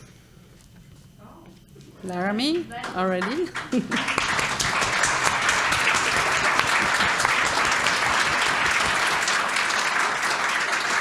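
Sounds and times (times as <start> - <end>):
audience applause: 2.8 - 11.0.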